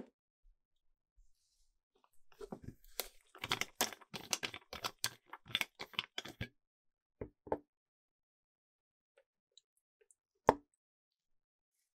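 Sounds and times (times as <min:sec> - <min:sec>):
plastic clicks and scrapes: 0:02.4 - 0:06.5.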